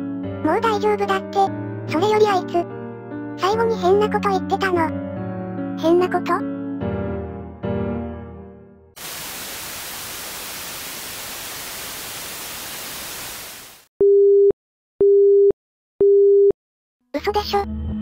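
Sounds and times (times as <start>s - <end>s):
telephone line static hiss: 9.0s - 13.8s
dropped call beep tone: 14.0s - 16.6s.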